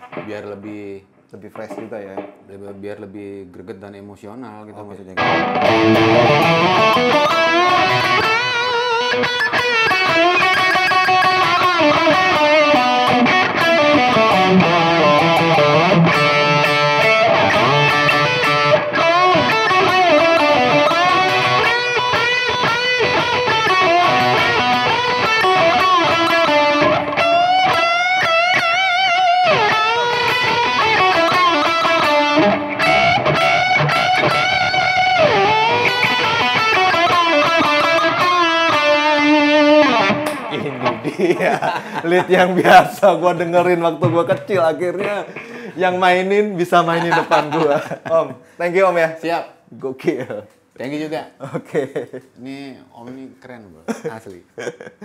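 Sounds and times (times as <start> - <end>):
electric guitar lead solo: 0.0 - 0.4, 5.2 - 41.2.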